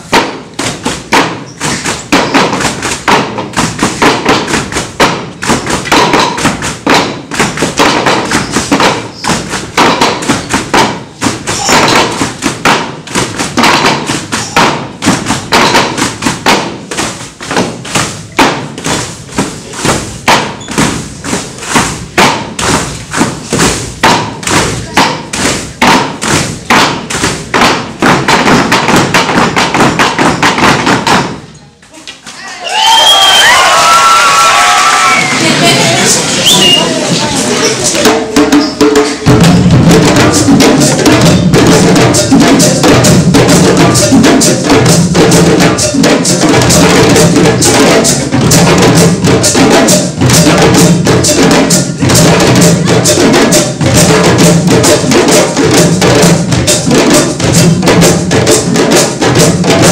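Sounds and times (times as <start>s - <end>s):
hand drum ensemble playing: 0.0s - 31.5s, 33.4s - 59.9s.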